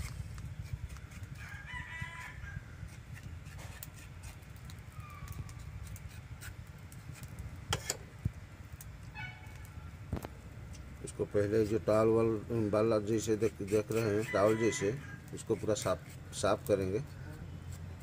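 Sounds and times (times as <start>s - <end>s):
rooster crowing: 1.4s - 2.8s, 14.2s - 15.3s
knife clicking and scraping: 2.2s - 8.0s.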